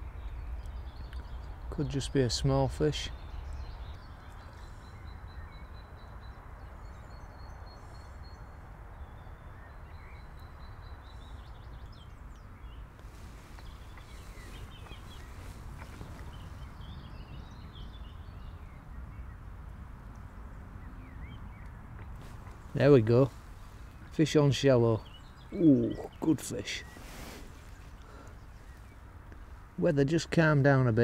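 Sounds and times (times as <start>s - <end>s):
birds chirping and singing: 12.7s - 18.6s, 22.8s - 29.1s
high bird trill: 25.4s - 27.0s.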